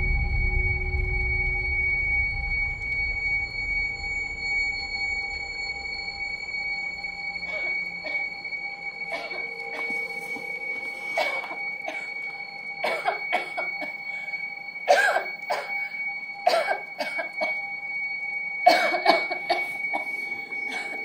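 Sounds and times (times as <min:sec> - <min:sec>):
high-pitched ringing tone: 0:00.0 - 0:21.0
person coughing: 0:07.5 - 0:08.3, 0:09.1 - 0:10.0, 0:11.2 - 0:12.1, 0:12.8 - 0:14.2, 0:14.9 - 0:17.6, 0:18.7 - 0:21.0.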